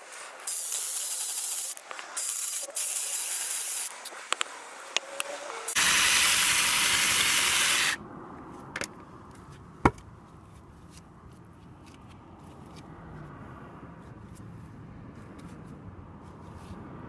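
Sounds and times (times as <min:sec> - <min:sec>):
electric chainsaw cutting log: 0:00.0 - 0:08.0.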